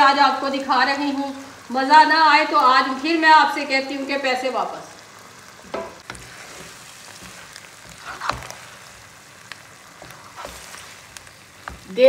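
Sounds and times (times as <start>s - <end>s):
greens sizzling in a pan: 0.0s - 12.0s
spoon scraping and knocking pan: 5.6s - 12.0s.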